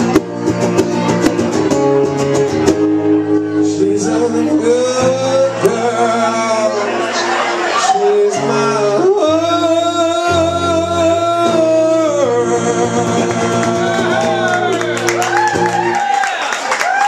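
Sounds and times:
strummed acoustic guitar: 0:00.0 - 0:15.8
man singing long note: 0:07.8 - 0:14.6.

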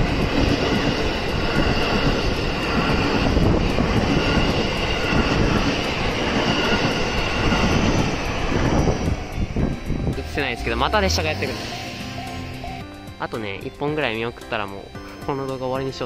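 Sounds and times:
wheels rumbling on rail: 0:00.0 - 0:12.8
train passing: 0:00.0 - 0:16.0.

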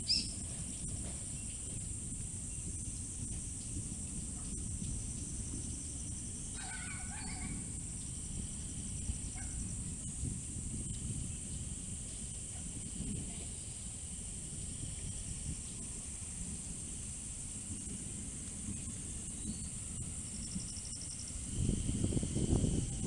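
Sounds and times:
bird call: 0:00.0 - 0:00.4
high hiss: 0:00.0 - 0:23.0
wind rumble on microphone: 0:00.0 - 0:23.0.

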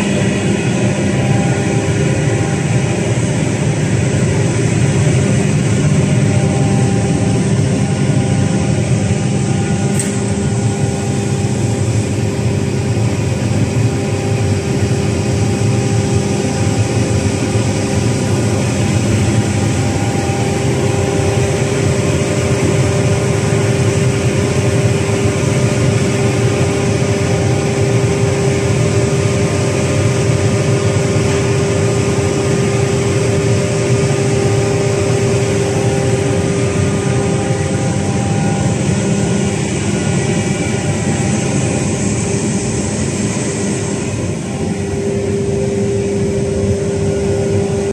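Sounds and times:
belt conveyor hum: 0:00.0 - 0:47.9
hammer mill running: 0:00.0 - 0:47.9.

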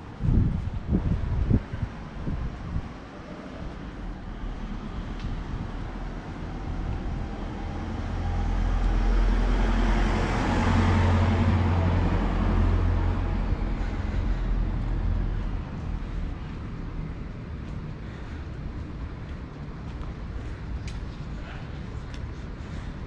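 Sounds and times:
city traffic noise: 0:00.0 - 0:23.0
motor vehicle passing by: 0:03.3 - 0:17.3.

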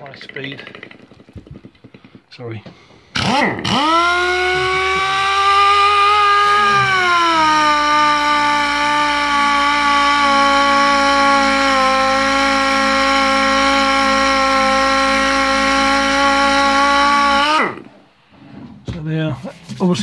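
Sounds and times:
orbital sander whining: 0:03.2 - 0:18.0.

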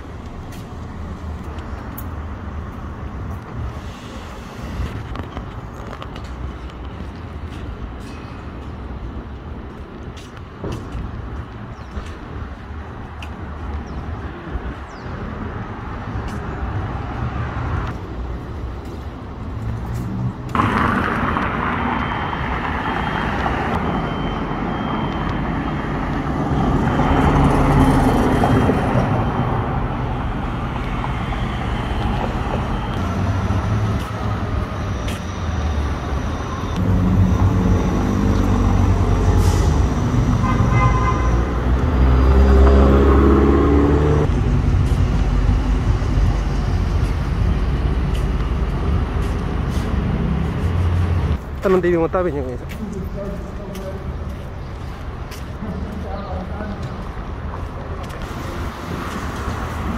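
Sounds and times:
cars and trucks passing: 0:00.0 - 0:59.9
vehicle engine pulling away: 0:41.6 - 0:51.3.

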